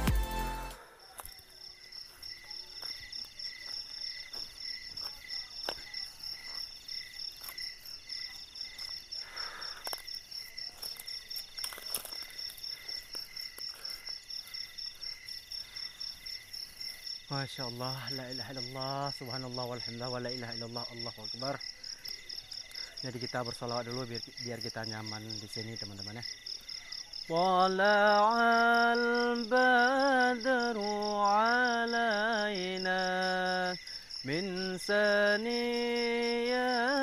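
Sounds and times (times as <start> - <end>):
footsteps on dry leaves and twigs: 0.0 - 19.3
crickets and night insects chirping: 0.1 - 37.0.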